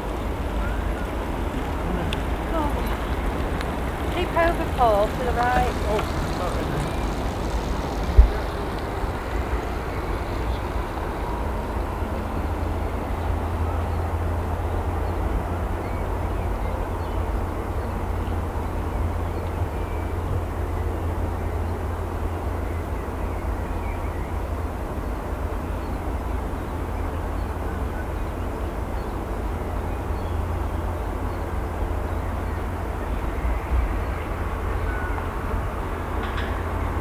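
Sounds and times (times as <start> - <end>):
jet engines idling: 0.0 - 22.1.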